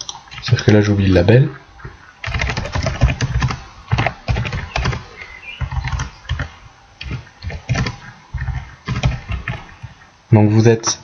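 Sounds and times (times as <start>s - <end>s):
computer keyboard typing: 2.2s - 10.0s.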